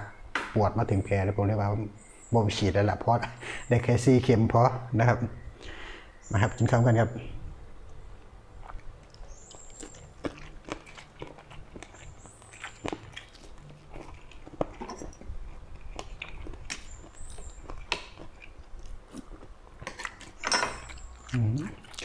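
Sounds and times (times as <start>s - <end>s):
person chewing food: 8.6s - 22.0s.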